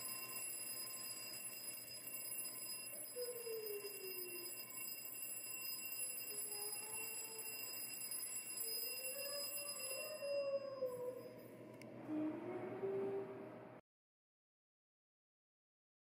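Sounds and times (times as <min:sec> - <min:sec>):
alarm clock bell ringing: 0:00.0 - 0:11.6.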